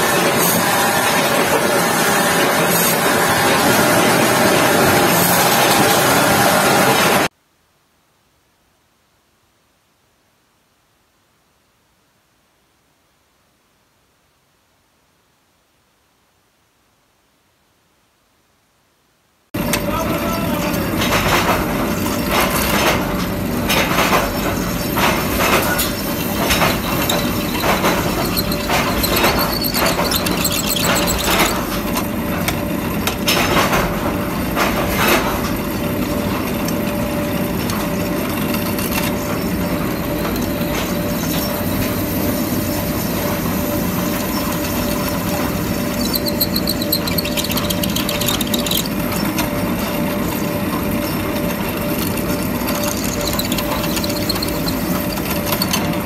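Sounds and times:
tapping machine humming: 0:19.6 - 0:56.0.

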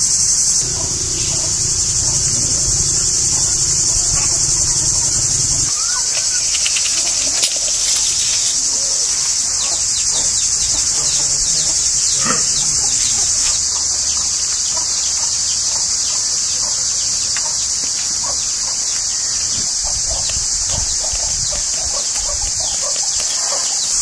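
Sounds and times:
faint low calls: 0:00.0 - 0:13.4
insects buzzing chorus: 0:00.0 - 0:24.0.

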